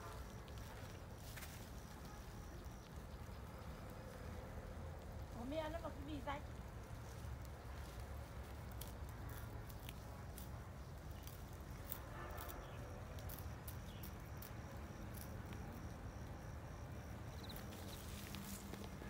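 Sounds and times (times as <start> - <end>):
insect chirping in pulses: 12.6 - 19.0.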